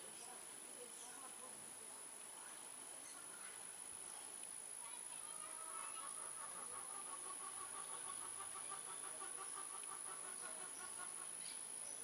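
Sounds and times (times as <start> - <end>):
animals chirping: 4.9 - 12.0.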